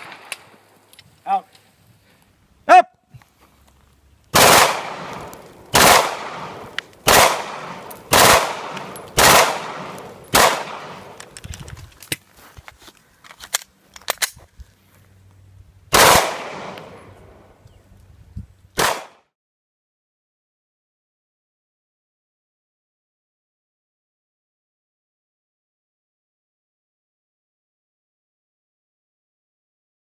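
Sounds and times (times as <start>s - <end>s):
automatic gunfire bursts: 4.4s - 5.1s, 5.7s - 11.0s, 15.9s - 16.8s.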